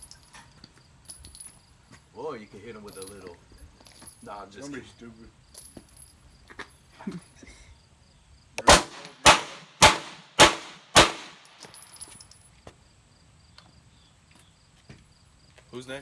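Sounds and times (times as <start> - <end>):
pistol shots with ringing echo: 8.6 - 11.6.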